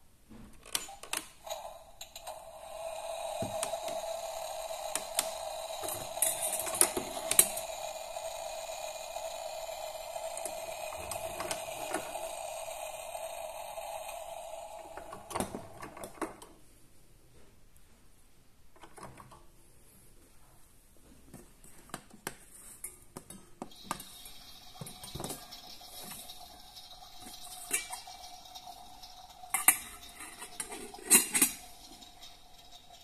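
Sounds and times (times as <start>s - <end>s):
steady electronic tone with hiss: 1.5s - 16.2s, 23.7s - 33.0s
small metal pans clinking: 29.4s - 33.0s.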